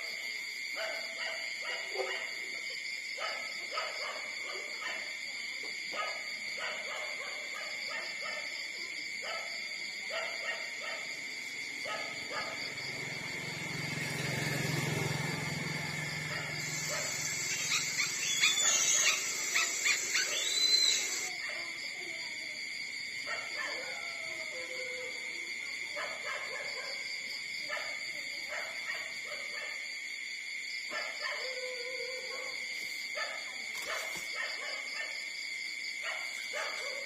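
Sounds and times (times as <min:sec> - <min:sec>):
puppies squealing: 0:16.3 - 0:21.3.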